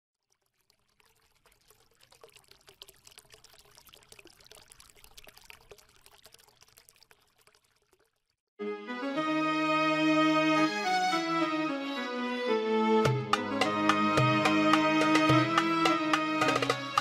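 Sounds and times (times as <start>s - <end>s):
water trickling and bubbling: 0.1s - 8.5s
music: 8.6s - 17.0s.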